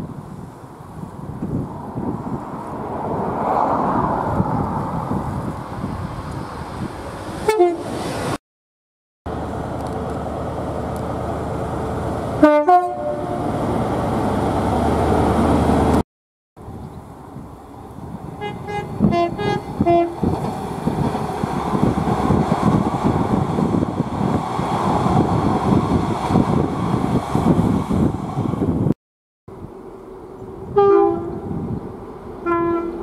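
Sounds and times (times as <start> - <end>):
diesel engine and wheels rumbling: 0.0 - 8.4, 9.3 - 16.0, 16.6 - 33.0
train horn blast: 7.4 - 7.9, 12.4 - 13.6, 18.4 - 20.2, 30.7 - 31.6, 32.4 - 33.0
two-note train horn: 12.4 - 13.5, 18.4 - 20.2, 30.7 - 31.6, 32.4 - 33.0.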